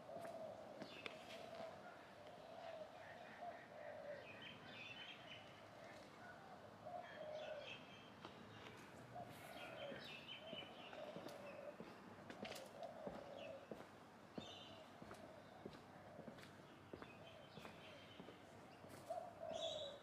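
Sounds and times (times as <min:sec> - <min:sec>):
birds chirping: 0:00.0 - 0:12.0.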